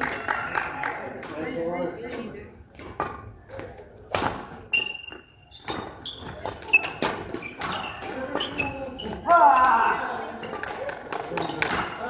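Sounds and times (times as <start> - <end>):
rackets hitting shuttlecock: 1.2 - 9.8, 10.5 - 12.0
court shoes squeaking: 2.8 - 12.0.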